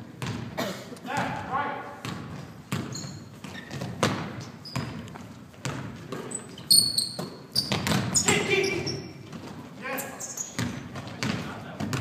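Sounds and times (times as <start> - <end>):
basketball bouncing on hardwood: 0.2 - 0.5, 2.0 - 6.3, 7.1 - 8.4, 10.6 - 12.0
sneaker squeaks: 2.0 - 12.0.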